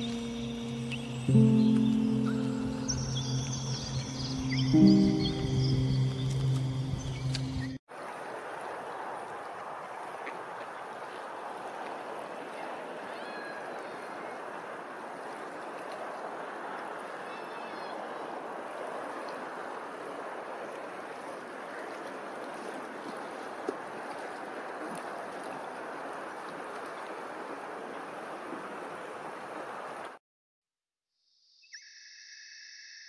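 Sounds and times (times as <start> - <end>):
open water rushing: 0.0 - 30.2
wind: 0.0 - 30.2
faint bird call: 13.1 - 14.4.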